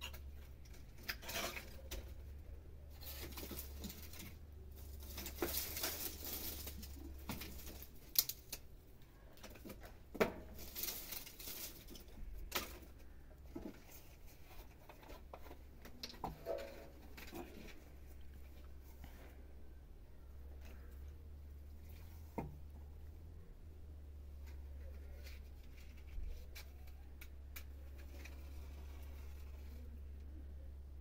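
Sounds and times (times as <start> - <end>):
dry branches rustling and crackling: 0.0 - 19.5, 24.0 - 30.4
twigs snapping: 3.1 - 8.7.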